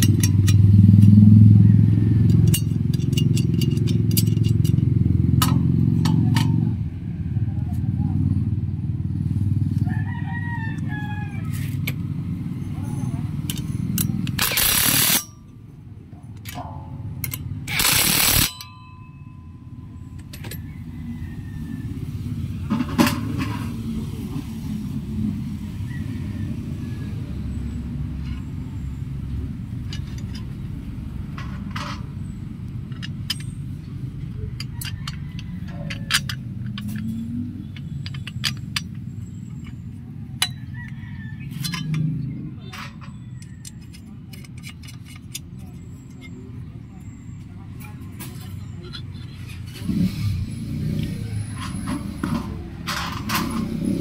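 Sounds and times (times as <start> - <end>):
metal brackets clicking: 0.0 - 1.6, 2.2 - 6.8, 12.7 - 19.4, 29.3 - 50.1.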